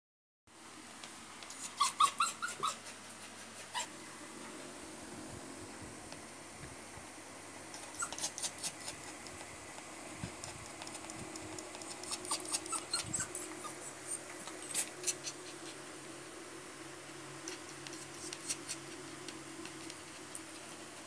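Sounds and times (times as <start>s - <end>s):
dog panting fast: 7.8s - 15.9s.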